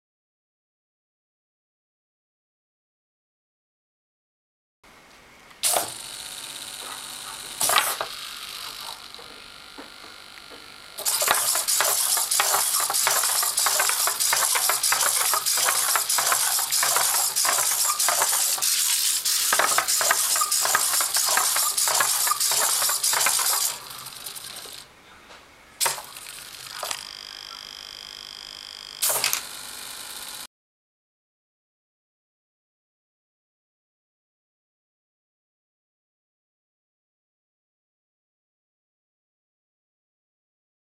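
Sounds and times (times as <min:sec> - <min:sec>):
servo clicks: 0:05.6 - 0:24.9, 0:25.8 - 0:27.8, 0:29.0 - 0:30.4
servos buzzing and clattering: 0:05.6 - 0:24.9, 0:25.8 - 0:27.3, 0:29.0 - 0:30.5.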